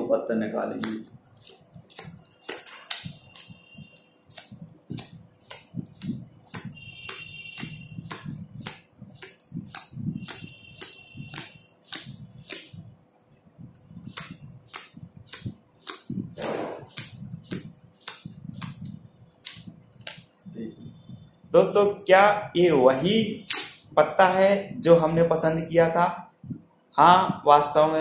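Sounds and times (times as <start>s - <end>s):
playing cards snapping: 4.3s - 12.7s, 14.1s - 18.8s.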